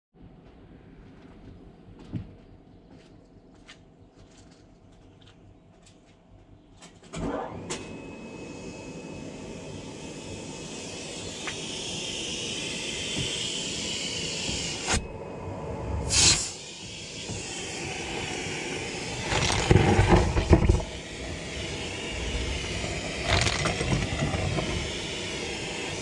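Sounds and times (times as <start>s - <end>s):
car vacuum whining: 7.1s - 26.0s.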